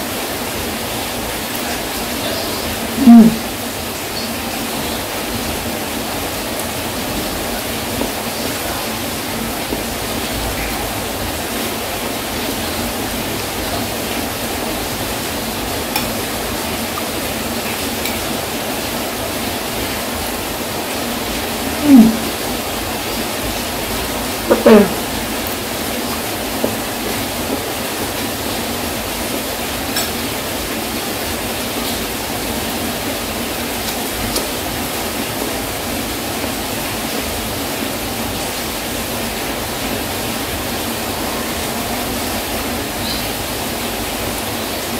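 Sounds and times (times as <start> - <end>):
heavy rain falling: 0.0 - 44.9
voice-like sounds with sliding pitch: 21.8 - 22.3, 24.5 - 25.1.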